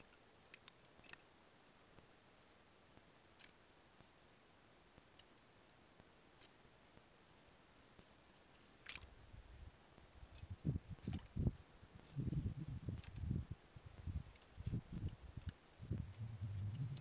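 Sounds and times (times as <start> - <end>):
low rumble: 15.8 - 17.0.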